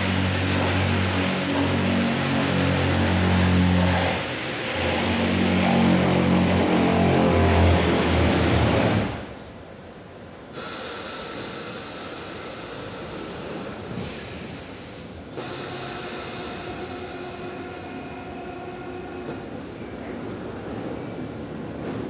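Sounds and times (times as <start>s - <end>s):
train running hiss: 10.5s - 21.9s.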